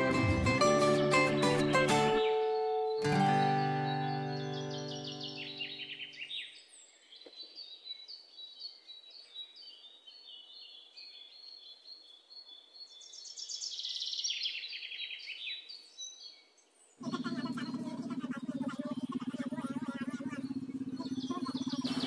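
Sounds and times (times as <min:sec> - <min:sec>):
guitar music: 0:00.0 - 0:06.0, 0:17.0 - 0:22.0
small birds chirping: 0:01.3 - 0:22.0.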